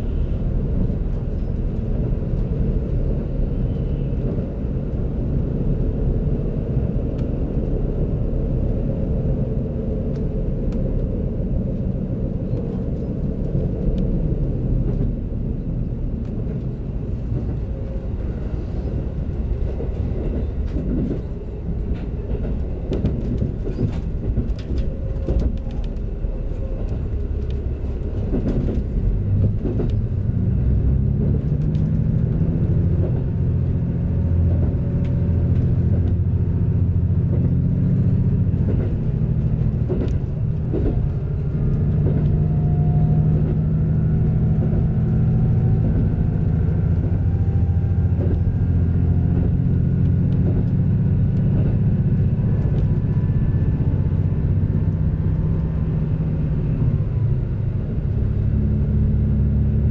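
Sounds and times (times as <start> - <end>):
diesel engine low drone: 0.0 - 59.9
wheels clicking on track: 16.1 - 59.9.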